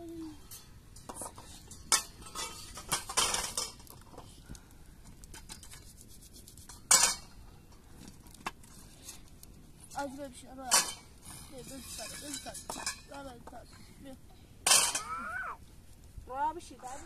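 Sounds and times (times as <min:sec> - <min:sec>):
metal poles clattering together: 0:01.0 - 0:04.2, 0:06.9 - 0:07.3, 0:11.7 - 0:13.3, 0:14.6 - 0:15.1.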